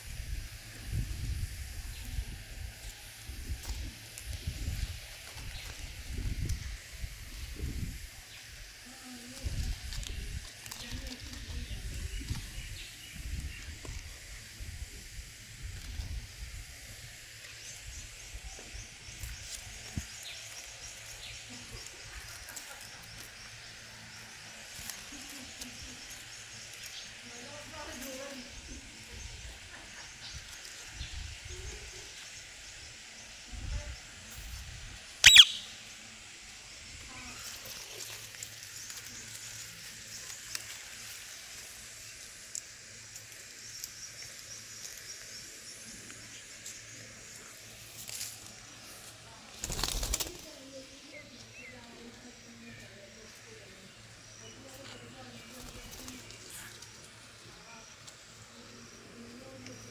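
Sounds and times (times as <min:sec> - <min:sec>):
low rumble on microphone: 0:00.0 - 0:08.2
steady hiss: 0:00.0 - 0:59.9
faint high chirps: 0:35.2 - 0:35.9.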